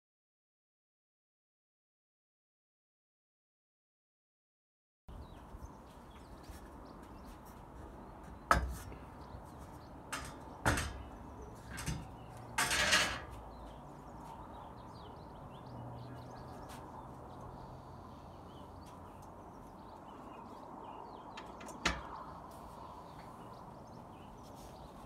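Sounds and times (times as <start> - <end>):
metal bars knocking: 10.0 - 13.4, 21.4 - 22.3
metal clattering scrape: 10.1 - 13.4.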